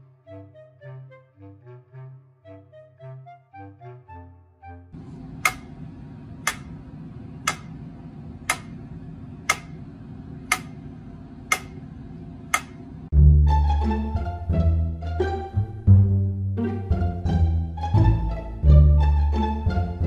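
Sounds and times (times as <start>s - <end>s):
low steady hum: 5.0s - 20.0s
sharp ticks: 8.5s - 8.8s, 10.5s - 10.8s, 11.5s - 11.8s.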